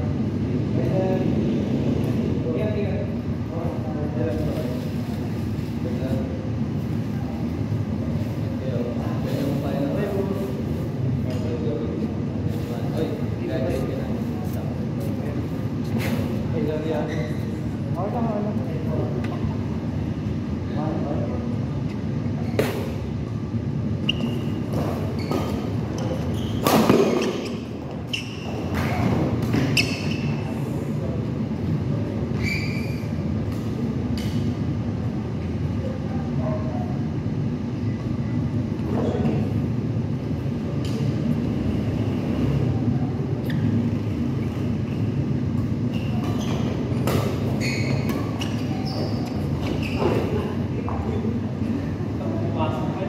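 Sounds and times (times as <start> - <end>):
hall background noise: 0.0 - 53.0
shoes squeaking on court floor: 15.0 - 17.7, 24.0 - 30.6, 32.3 - 34.5, 43.4 - 51.2.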